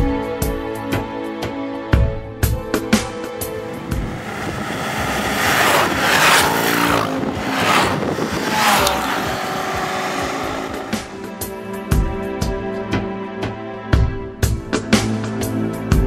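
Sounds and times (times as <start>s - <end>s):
road vehicles passing by: 3.3s - 11.3s.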